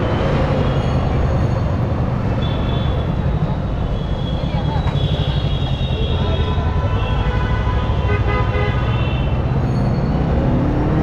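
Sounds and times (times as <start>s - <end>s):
vehicle horn: 5.1s - 9.4s.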